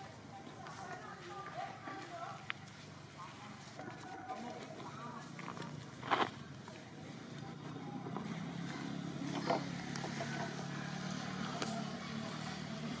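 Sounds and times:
motor engine droning: 0:05.2 - 0:13.0.

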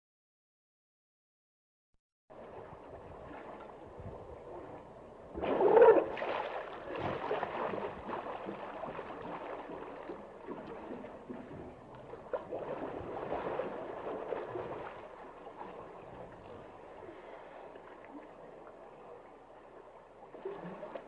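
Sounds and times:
water sloshing: 0:02.3 - 0:21.0
hippopotamus gurgling in water: 0:03.0 - 0:18.3.

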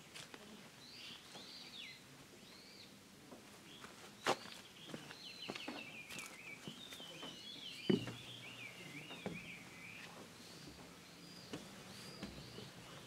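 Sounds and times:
footsteps on wooden stairs: 0:04.8 - 0:08.4, 0:09.1 - 0:13.0.

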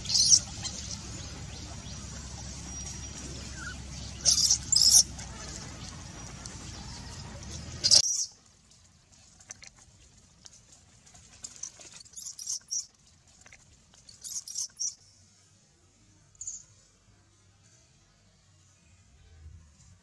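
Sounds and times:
baby monkey squeaking: 0:00.0 - 0:00.9, 0:03.5 - 0:05.1, 0:12.1 - 0:12.9, 0:14.2 - 0:15.0.

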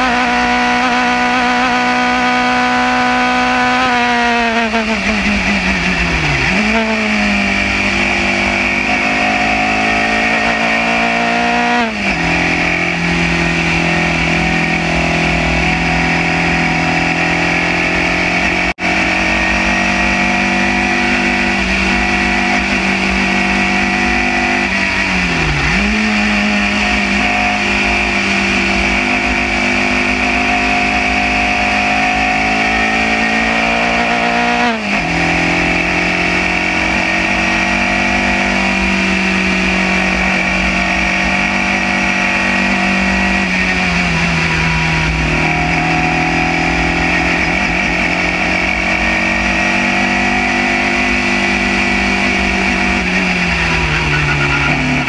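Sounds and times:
racing car engine pulling hard: 0:00.0 - 0:55.0.

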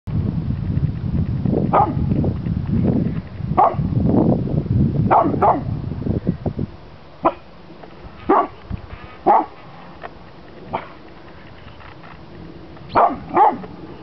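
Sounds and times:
steady low rumble: 0:00.1 - 0:14.0
dog barking: 0:01.7 - 0:02.0, 0:03.6 - 0:03.9, 0:05.1 - 0:05.7, 0:07.2 - 0:07.5, 0:08.3 - 0:08.6, 0:09.2 - 0:09.6, 0:12.9 - 0:13.7.

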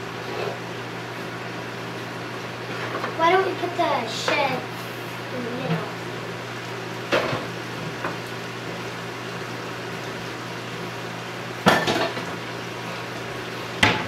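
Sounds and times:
kitchenware clattering: 0:11.7 - 0:12.3.

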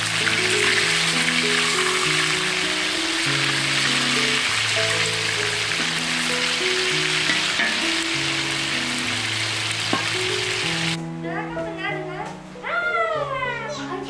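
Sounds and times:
oil sizzling in a wok: 0:00.0 - 0:11.0
music of slow held notes: 0:00.0 - 0:14.0.

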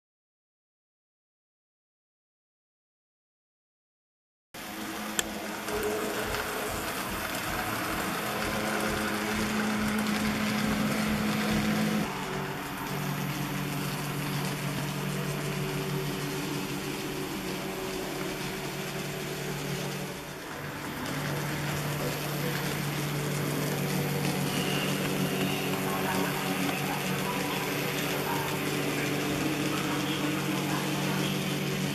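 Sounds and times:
electric motor humming: 0:04.6 - 0:31.9
wheels rumbling on track: 0:04.9 - 0:31.9.

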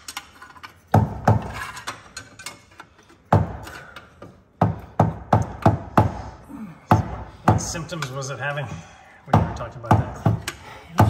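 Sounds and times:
sharp metal knocks: 0:00.9 - 0:02.6.

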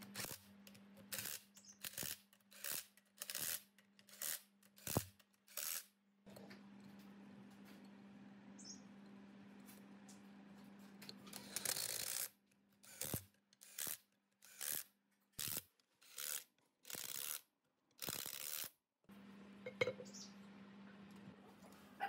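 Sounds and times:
metal parts scraping and rubbing: 0:01.1 - 0:05.9, 0:11.2 - 0:17.4, 0:18.0 - 0:18.7.

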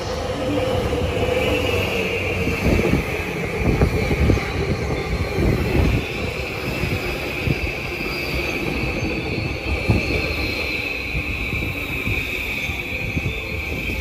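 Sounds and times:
train high whine: 0:00.0 - 0:14.0.

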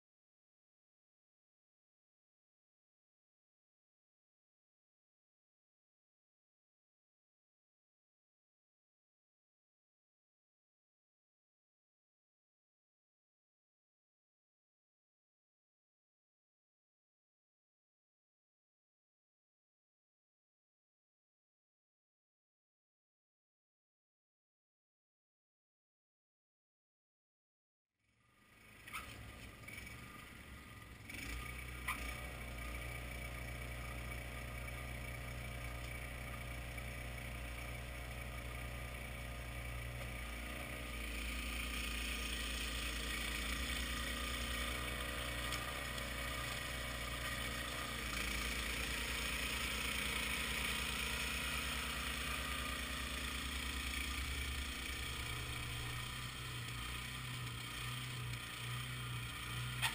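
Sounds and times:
snowblower engine running: 0:28.2 - 0:59.9.

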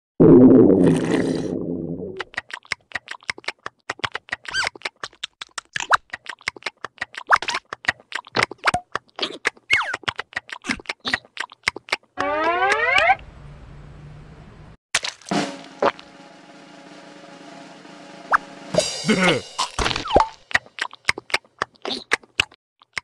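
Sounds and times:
squeaky clicks and chirps: 0:02.2 - 0:13.2, 0:20.1 - 0:23.0.

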